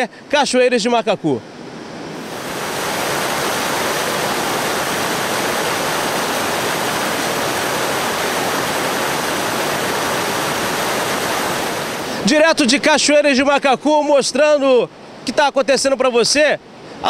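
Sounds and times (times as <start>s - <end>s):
river water rushing over rocks: 2.2s - 13.0s.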